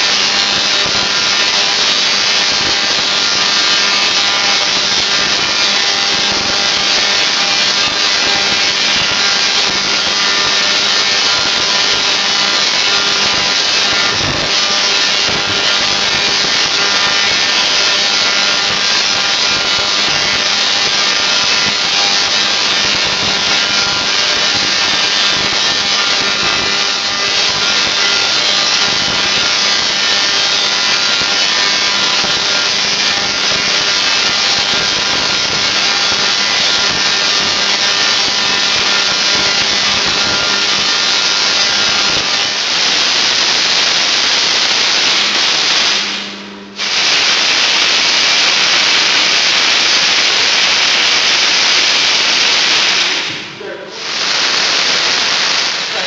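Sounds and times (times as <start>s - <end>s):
tesla coil sparks buzzing: 0.0s - 56.0s.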